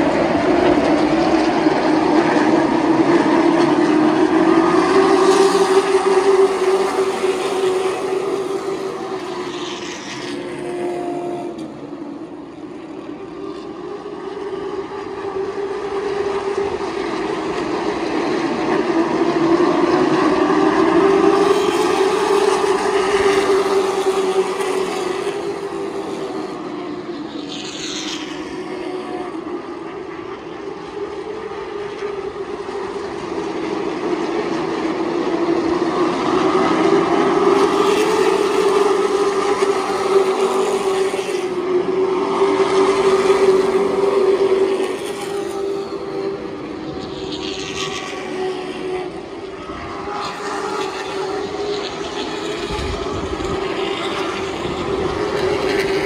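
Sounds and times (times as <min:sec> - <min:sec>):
race car engines droning: 0:00.0 - 0:56.0.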